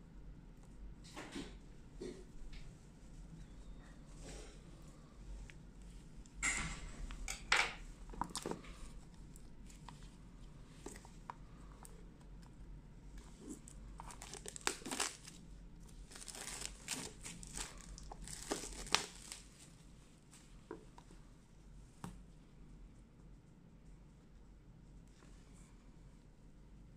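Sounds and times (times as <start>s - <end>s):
plastic wrap crinkling and tearing: 13.2s - 19.8s.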